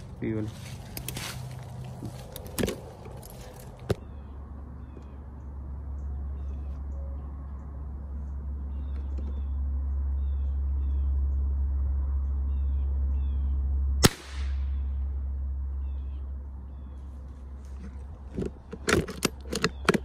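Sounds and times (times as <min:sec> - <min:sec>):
steady low rumble: 0:00.0 - 0:19.8
rifle gunshot: 0:14.0 - 0:14.6.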